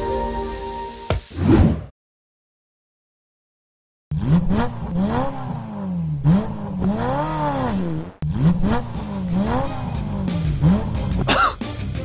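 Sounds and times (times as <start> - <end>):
car engine revving: 4.1 - 11.4.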